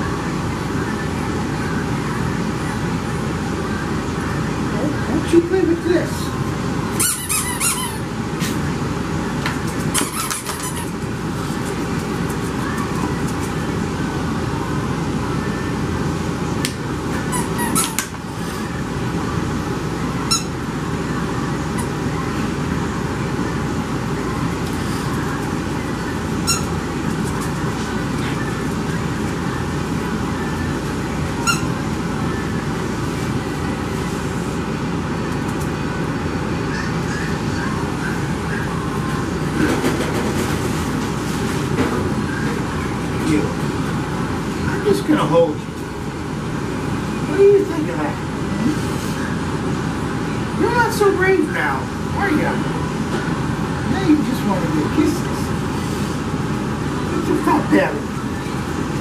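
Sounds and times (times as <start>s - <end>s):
fan whooshing: 0.0s - 59.0s
puppies squeaking: 7.0s - 8.1s, 9.8s - 13.5s, 17.2s - 18.1s, 20.3s - 20.6s, 26.3s - 28.8s, 31.3s - 31.9s, 36.7s - 38.8s.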